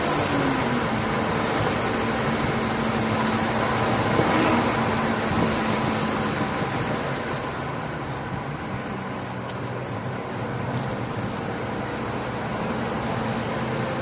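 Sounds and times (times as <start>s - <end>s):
car engine inside cabin: 0.0s - 14.0s
tyre and wind noise: 1.3s - 7.4s.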